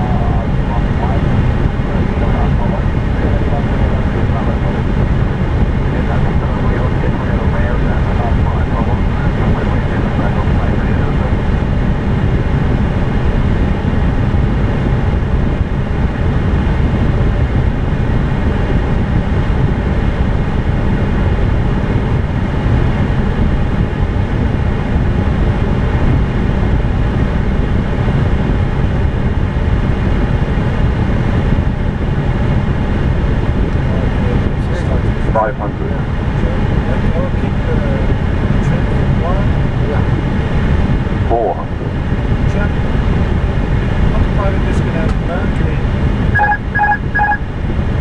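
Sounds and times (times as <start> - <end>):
aircraft engine and airflow noise: 0.0 - 48.0
faint high-pitched hum: 46.2 - 47.5.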